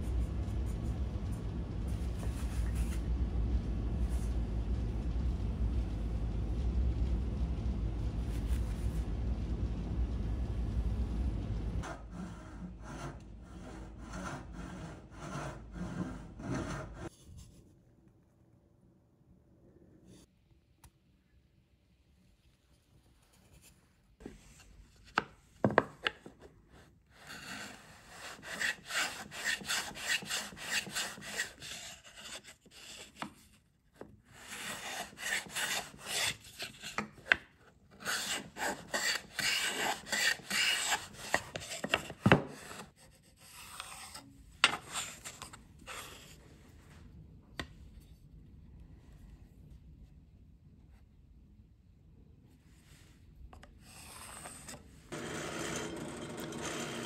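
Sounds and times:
chisel scraping wood: 11.9s - 17.1s, 27.1s - 33.5s, 34.3s - 46.3s, 53.8s - 57.0s.

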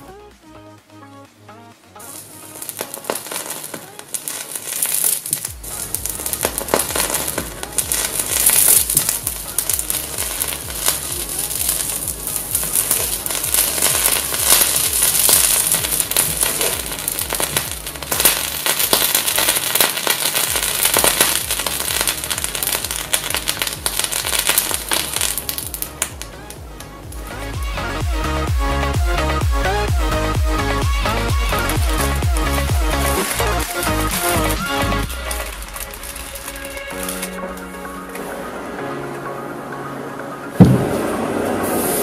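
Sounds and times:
background music with bass beat: 0.0s - 42.0s
hot blade sizzling and crackling: 2.0s - 27.5s, 31.4s - 38.2s.

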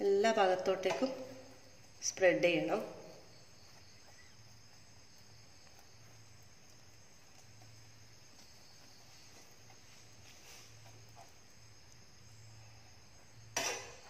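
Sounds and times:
cricket trill: 0.0s - 14.0s
metal spoon scraping a pan: 13.5s - 14.0s.

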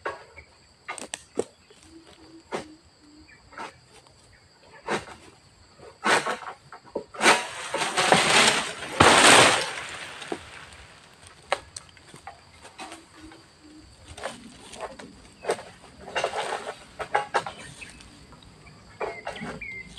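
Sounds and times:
sickle snapping palm frond: 0.9s - 1.5s, 7.2s - 13.0s
frond crashing through foliage: 7.3s - 11.7s.

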